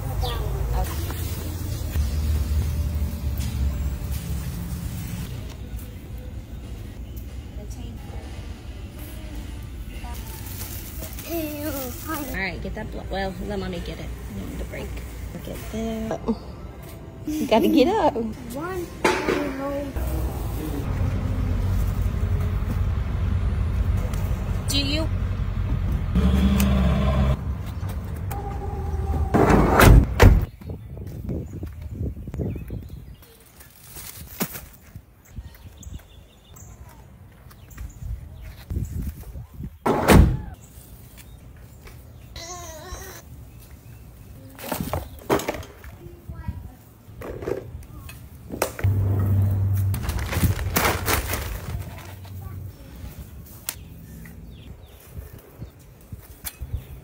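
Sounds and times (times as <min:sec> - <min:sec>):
van sliding door banging shut: 0:29.3 - 0:30.5.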